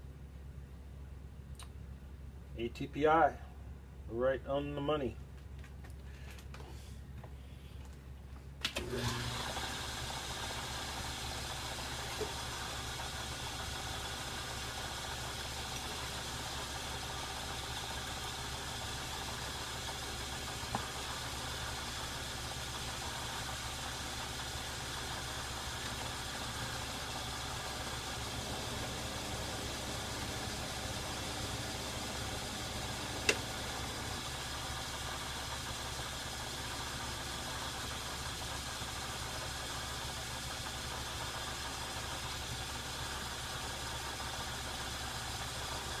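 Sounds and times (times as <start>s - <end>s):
metal lathe running: 8.9s - 46.0s
lathe switch clicking on: 33.2s - 34.0s.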